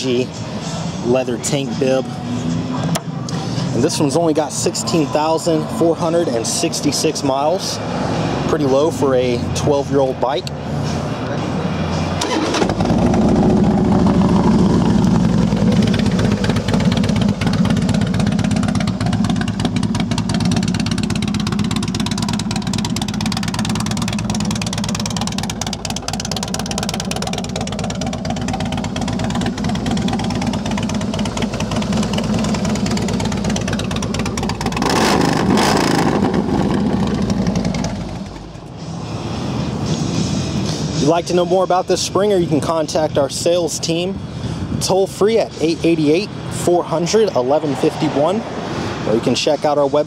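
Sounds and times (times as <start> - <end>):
motorcycle engine idling: 12.3 - 38.8.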